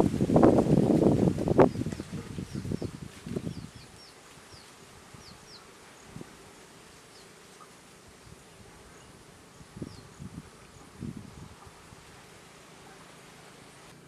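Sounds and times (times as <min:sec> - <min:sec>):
insect buzzing: 0:00.0 - 0:14.0.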